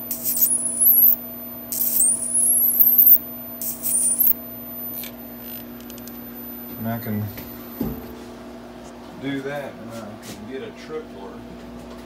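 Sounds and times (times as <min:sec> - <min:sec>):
high-voltage arc sizzling: 0:00.0 - 0:05.0
steady low hum: 0:00.0 - 0:11.6.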